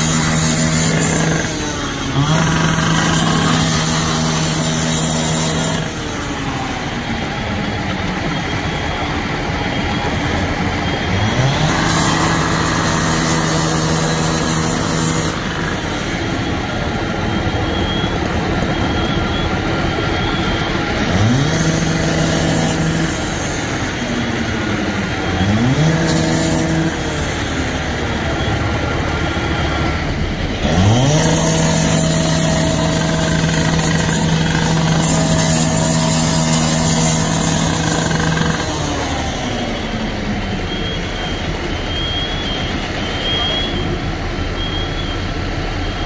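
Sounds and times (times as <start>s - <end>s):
cut-off saw revving and cutting metal: 0.0s - 45.7s.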